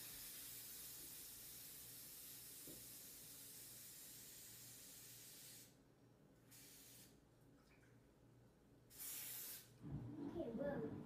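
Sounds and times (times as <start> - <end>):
aerosol spray hissing: 0.0 - 5.8, 6.5 - 7.2, 8.9 - 9.8.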